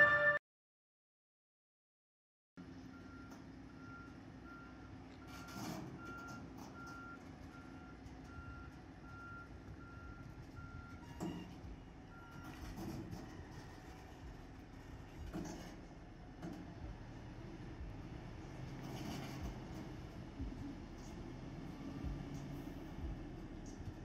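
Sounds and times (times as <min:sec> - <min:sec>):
reversing alarm beeping: 0:00.0 - 0:00.4, 0:02.9 - 0:14.3
diesel engine running: 0:02.8 - 0:24.0.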